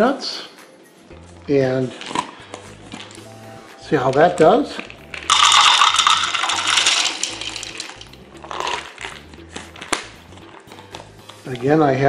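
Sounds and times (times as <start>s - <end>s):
peanuts rattling into plastic bowl: 4.1s - 9.2s.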